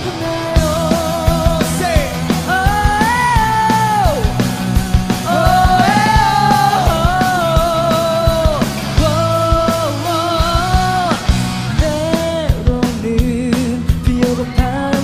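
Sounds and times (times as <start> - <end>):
electric guitars: 0.0 - 15.0
rock band playing: 0.0 - 15.0
steady drum beat: 0.0 - 15.0
man singing long notes: 5.2 - 15.0.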